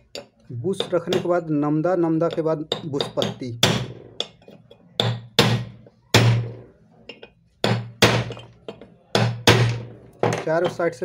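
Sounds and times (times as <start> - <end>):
hammer striking metal: 2.3 - 10.9.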